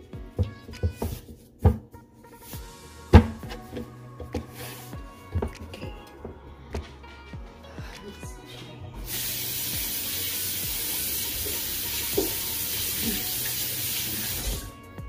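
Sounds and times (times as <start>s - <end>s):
tap water running into sink: 9.1s - 14.7s.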